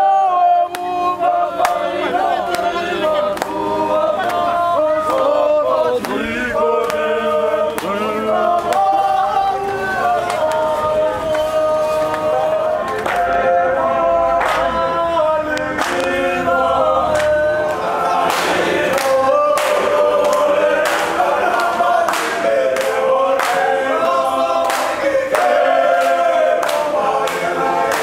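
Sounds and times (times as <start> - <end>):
men singing in harmony: 0.0 - 28.0
hand claps: 0.7 - 1.0, 1.6 - 1.8, 2.5 - 3.6, 4.2 - 5.4, 6.0 - 8.9, 10.1 - 10.7, 11.3 - 13.4, 14.4 - 14.8, 15.6 - 16.2, 17.1 - 28.0.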